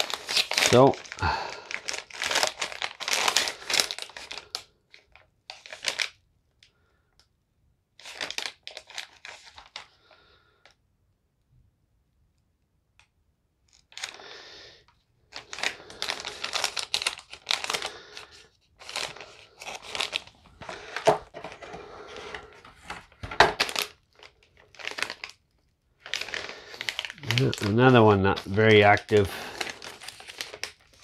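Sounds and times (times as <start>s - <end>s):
plastic bag crinkling: 0.0s - 6.2s, 8.0s - 10.2s, 13.7s - 14.2s, 15.3s - 31.0s.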